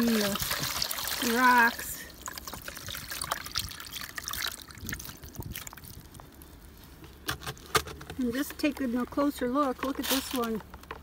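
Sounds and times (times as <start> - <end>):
water trickling and dripping: 0.0 - 6.4.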